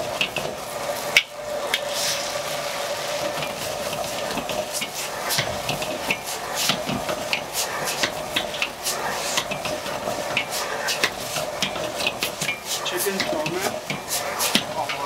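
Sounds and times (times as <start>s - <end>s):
noodles sizzling: 0.0s - 15.0s
metal ladle scraping a wok: 1.8s - 3.4s.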